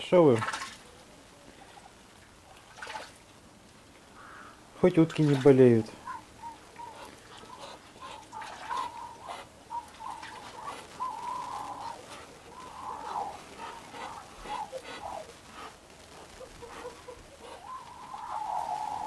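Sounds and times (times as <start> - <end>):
ducks cooing softly: 4.0 - 19.0.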